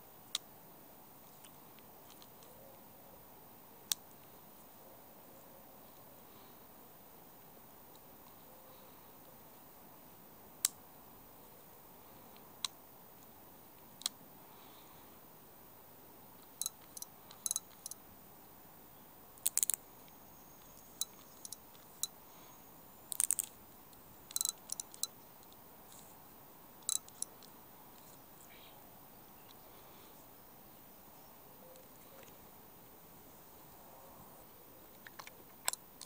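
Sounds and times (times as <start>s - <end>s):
fishing reel clicks and snaps: 16.6s - 18.0s, 19.4s - 19.8s, 23.1s - 23.5s, 24.3s - 25.1s.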